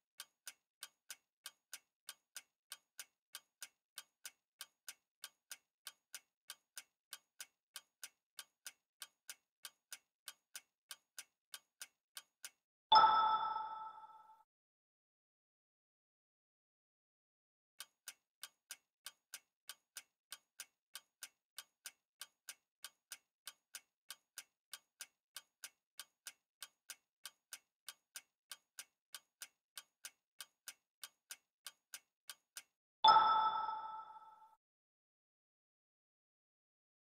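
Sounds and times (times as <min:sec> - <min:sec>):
timer ticking: 0:00.0 - 0:14.3, 0:17.8 - 0:34.5
bright chime: 0:33.1 - 0:34.5.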